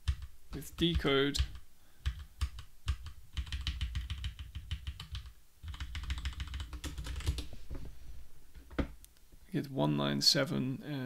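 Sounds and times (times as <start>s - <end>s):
typing on computer keyboard: 0.0s - 7.4s.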